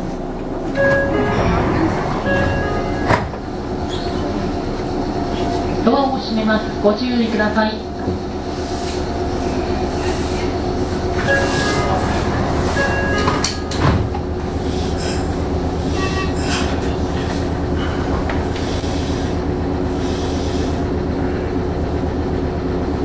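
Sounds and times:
electric train humming: 0.0 - 23.0
short tones: 11.2 - 13.8.

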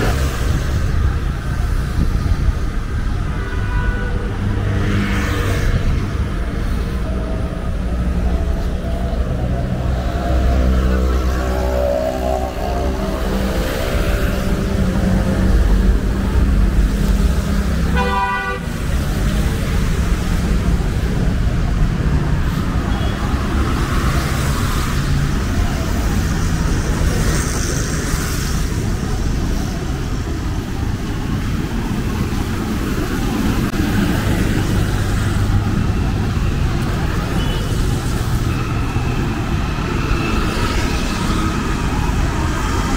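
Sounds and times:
vehicles passing on wet road: 0.0 - 42.9
vehicle horn toot: 17.9 - 18.6.

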